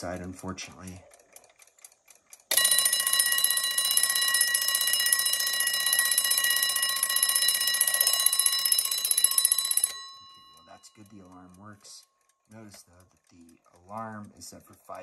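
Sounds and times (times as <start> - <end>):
faint clicks: 0.0 - 2.5, 9.0 - 15.0
alarm clock bell ringing: 2.5 - 12.2.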